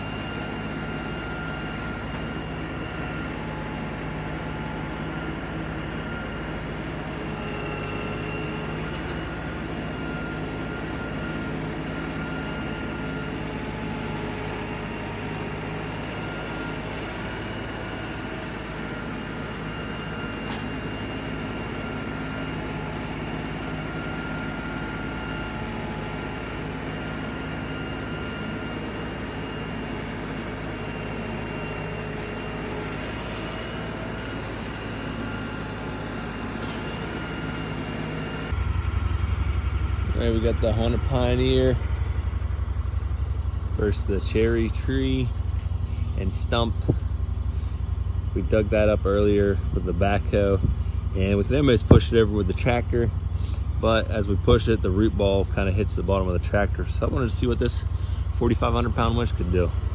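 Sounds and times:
loud engine: 0.0 - 59.9
tractor diesel engine running: 0.0 - 59.9.

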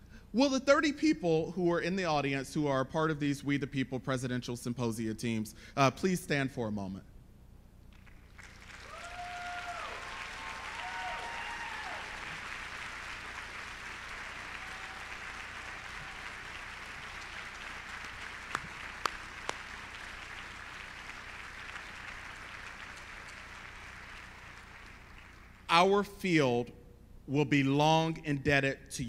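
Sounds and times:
audience applauding: 8.0 - 25.7.

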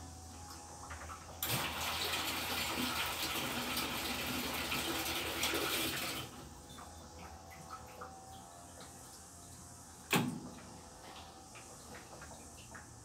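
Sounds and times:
water gushing in washing machine: 0.0 - 9.1.

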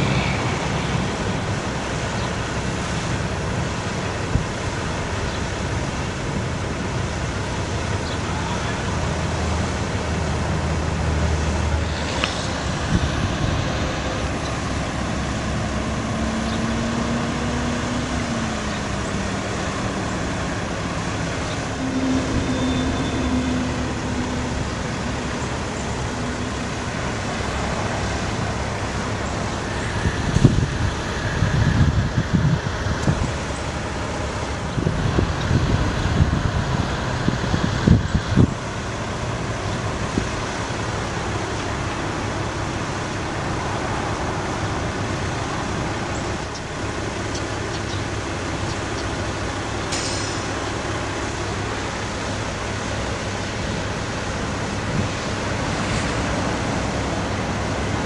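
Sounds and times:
diesel truck engine running: 0.0 - 58.0
faint rising tone: 21.5 - 26.4.

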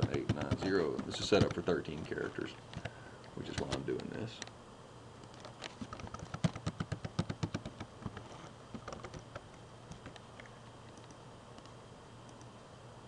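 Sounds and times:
keyboard keys tapping: 0.0 - 2.1, 5.8 - 8.2, 8.8 - 10.2.

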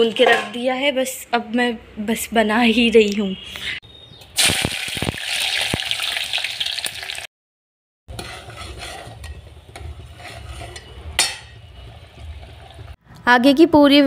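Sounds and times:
food sizzling in a pot: 4.4 - 7.3
ladle scraping pot: 8.1 - 12.9.

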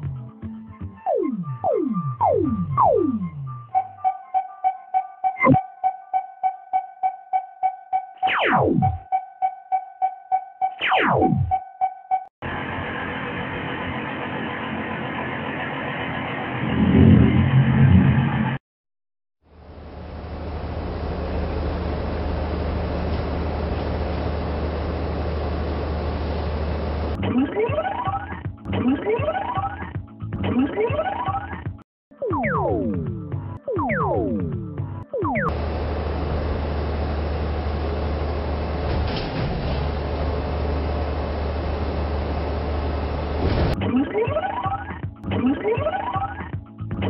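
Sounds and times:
truck engine running: 12.4 - 16.7, 19.6 - 27.2, 35.5 - 43.8.

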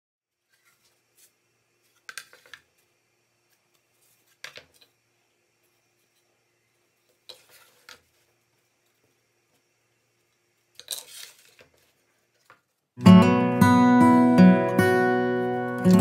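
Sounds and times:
faint steady hum: 0.3 - 16.0.

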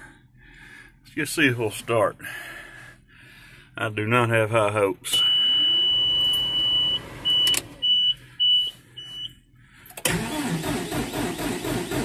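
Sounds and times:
warning beeper tone and beeps: 5.2 - 9.4
diesel engine starter cranking: 9.9 - 12.0.

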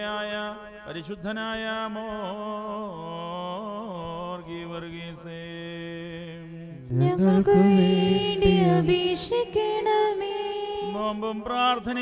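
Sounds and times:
man singing a long note: 6.7 - 8.9
group chanting: 6.9 - 8.9.

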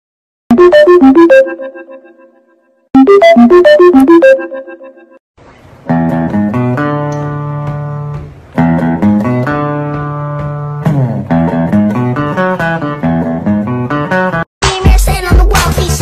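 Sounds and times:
music track: 0.5 - 5.2, 5.8 - 16.0
plucked guitar melody: 5.8 - 14.4.

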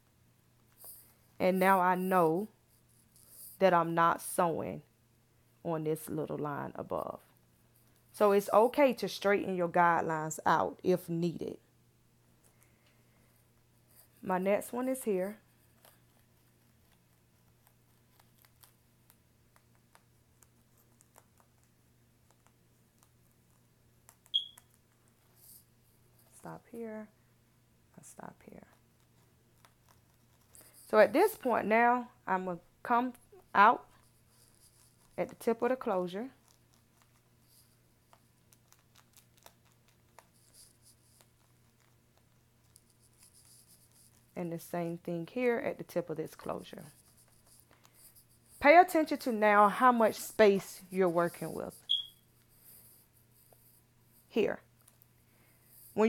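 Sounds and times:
pen scratching on mesh: 0.7 - 3.9, 13.8 - 26.4, 28.6 - 31.7, 33.1 - 44.5, 46.0 - 55.0.

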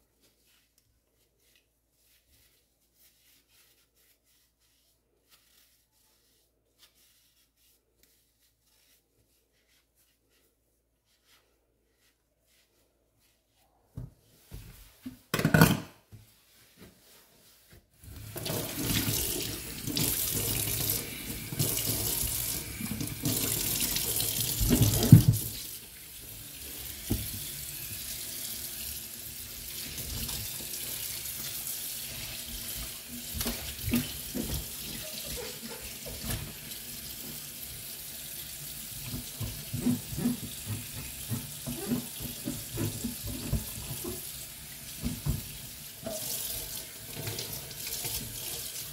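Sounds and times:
tap water running into a sink: 18.2 - 48.9.

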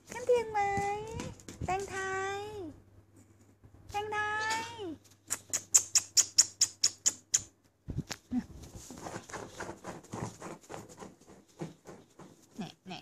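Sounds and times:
scratching and shuffling: 0.0 - 6.2, 7.6 - 13.0
puppy claws clicking on tile: 5.2 - 7.5.

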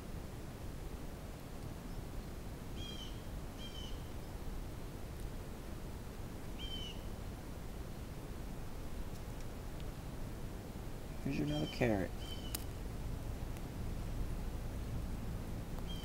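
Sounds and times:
small bird chirping: 2.8 - 4.4, 6.6 - 7.1, 11.2 - 12.7, 15.8 - 16.0
low background rumble: 12.0 - 16.0.

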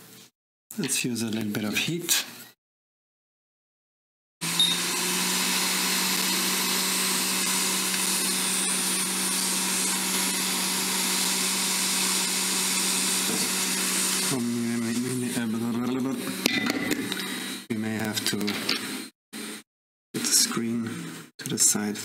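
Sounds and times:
hot air hissing: 4.6 - 14.4.

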